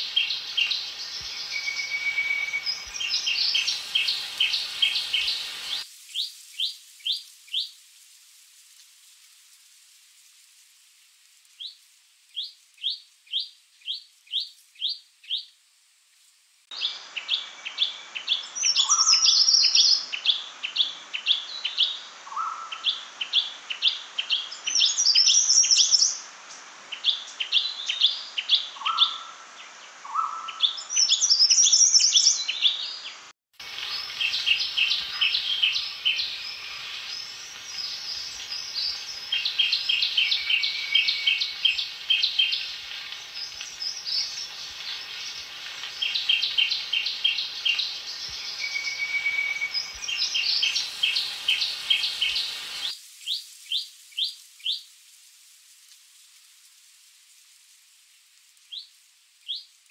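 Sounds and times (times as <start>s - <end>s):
bird calls with high notes: 0.0s - 5.8s, 33.6s - 52.9s
bird chirping: 0.0s - 7.7s, 30.1s - 54.8s
background hiss: 0.0s - 59.9s.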